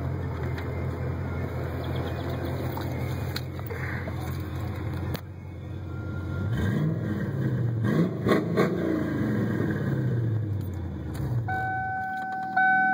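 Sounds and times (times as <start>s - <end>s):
car engine revving: 6.4s - 11.5s.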